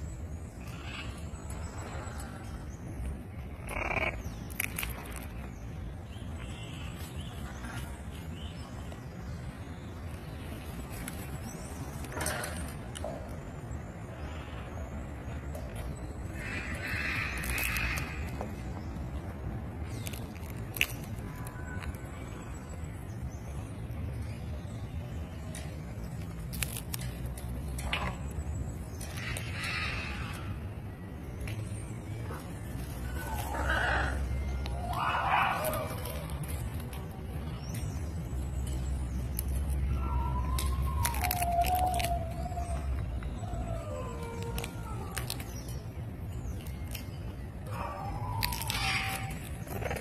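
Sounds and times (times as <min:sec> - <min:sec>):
parrot cracking peanut shell: 0:03.7 - 0:05.3.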